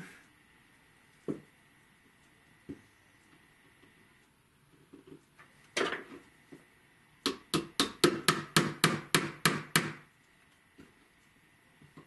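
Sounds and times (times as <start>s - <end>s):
small hammer tapping: 7.2s - 10.0s.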